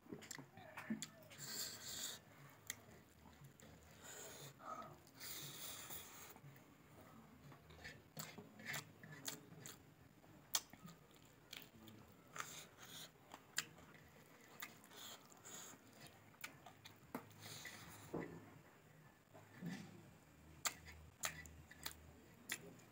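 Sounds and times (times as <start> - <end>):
person chewing: 7.7 - 9.8, 10.5 - 18.1, 20.6 - 22.8.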